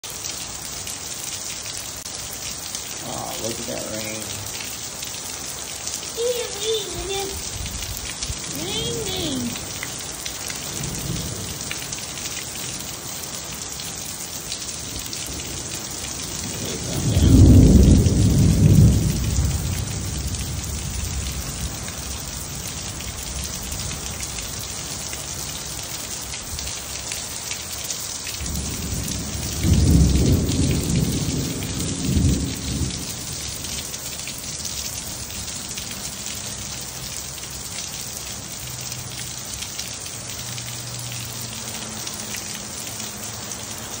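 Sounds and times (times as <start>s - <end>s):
steady rain hissing: 0.0s - 44.0s
thunder rumbling: 10.7s - 11.9s, 15.2s - 22.7s, 28.4s - 33.7s.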